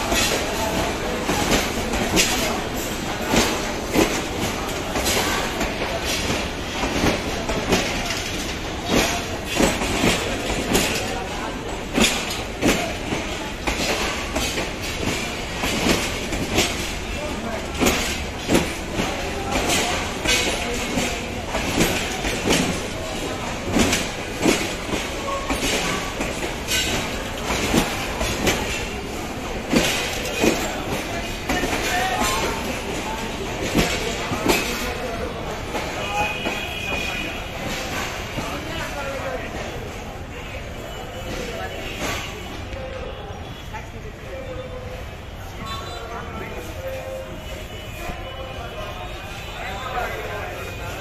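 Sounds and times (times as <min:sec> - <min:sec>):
wheels clacking over rail joints: 0:00.0 - 0:40.3
train wheels rumbling on rails: 0:00.0 - 0:51.0.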